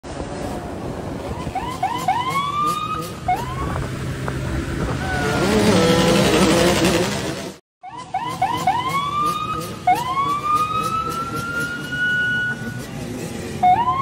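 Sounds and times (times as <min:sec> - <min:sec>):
motorcycle engines revving: 0:00.4 - 0:14.0
police siren whooping and wailing: 0:01.3 - 0:03.9, 0:07.8 - 0:12.7, 0:13.6 - 0:14.0.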